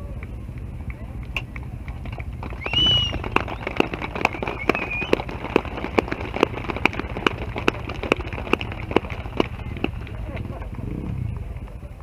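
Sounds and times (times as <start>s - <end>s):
dirt bike engines idling: 0.0s - 12.0s
short high whistle-like tone: 2.6s - 3.2s.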